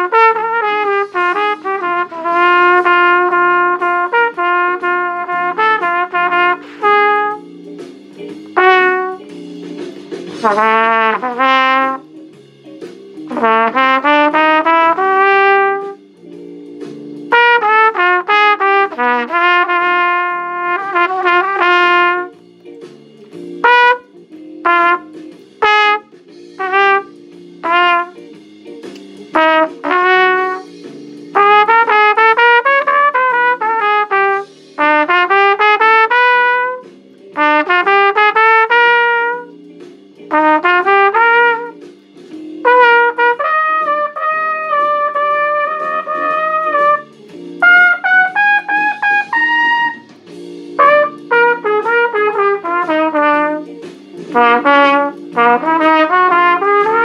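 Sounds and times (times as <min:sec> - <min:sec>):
backing chords: 0:00.0 - 0:07.6, 0:08.3 - 0:09.6, 0:10.3 - 0:12.2, 0:13.2 - 0:16.0, 0:17.2 - 0:22.4, 0:28.9 - 0:30.7, 0:42.6 - 0:57.0
trumpet playing blues: 0:00.0 - 0:07.7, 0:08.4 - 0:09.5, 0:10.3 - 0:12.2, 0:13.2 - 0:16.0, 0:17.2 - 0:22.4, 0:23.4 - 0:28.3, 0:29.3 - 0:39.6, 0:40.3 - 0:41.9, 0:42.5 - 0:57.0.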